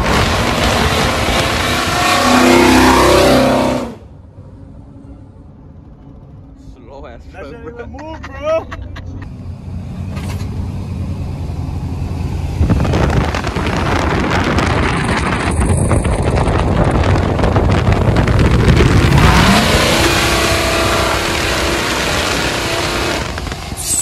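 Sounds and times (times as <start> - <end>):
pickup truck engine accelerating: 9.2 - 23.8.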